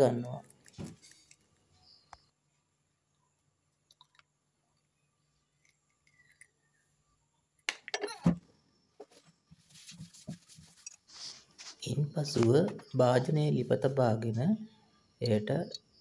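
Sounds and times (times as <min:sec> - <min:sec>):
eggshells cracking: 0:05.5 - 0:06.7.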